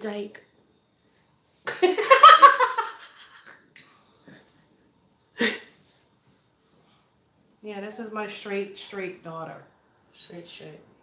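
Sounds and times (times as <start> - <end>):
woman laughing: 1.7 - 3.5.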